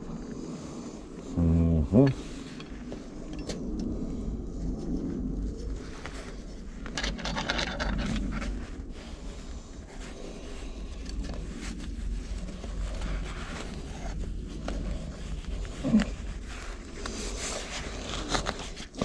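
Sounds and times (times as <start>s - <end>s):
low steady hum: 0.0s - 19.0s
allen key clicking and scraping: 6.9s - 8.5s.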